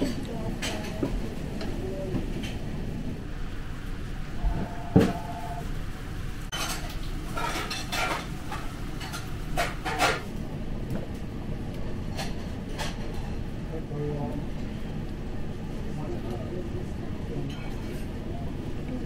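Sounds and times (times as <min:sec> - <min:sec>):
tableware clinking and clattering: 0:06.5 - 0:10.3.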